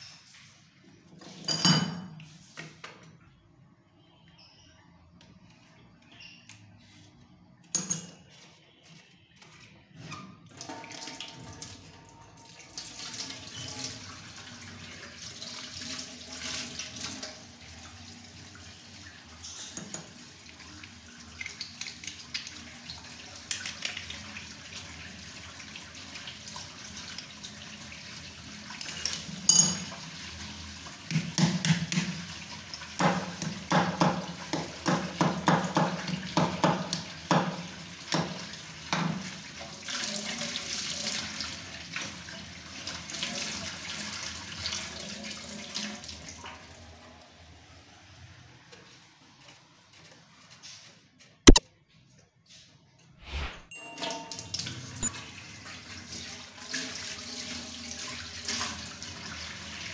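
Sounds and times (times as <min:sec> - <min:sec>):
brief sharp sound: 0:53.2 - 0:53.7.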